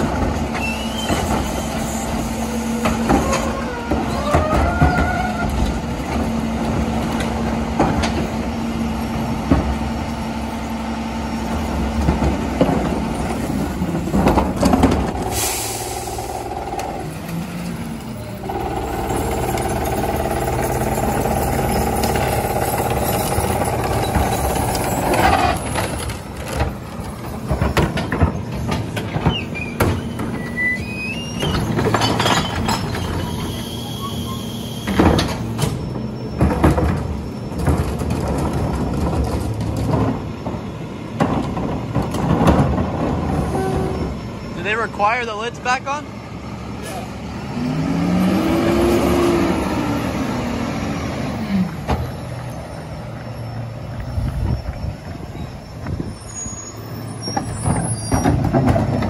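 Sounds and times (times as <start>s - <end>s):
garbage truck engine drone: 0.0s - 59.0s
carts clanking on tipper: 12.0s - 46.0s
hydraulic whine: 14.6s - 37.7s.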